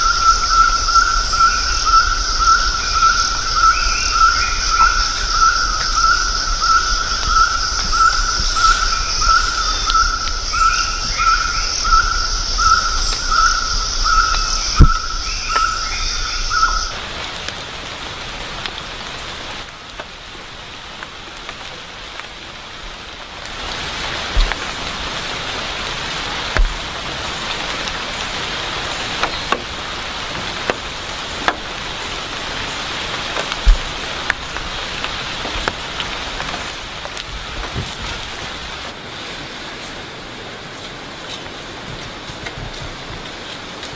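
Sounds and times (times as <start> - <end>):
insects shrilling: 0.0 - 17.0
steady hiss: 0.0 - 43.9.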